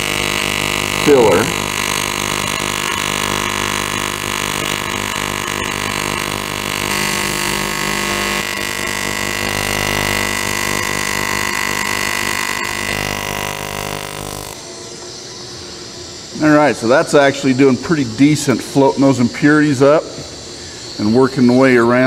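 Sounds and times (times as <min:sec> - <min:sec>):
welding arc buzzing: 0:00.0 - 0:14.9.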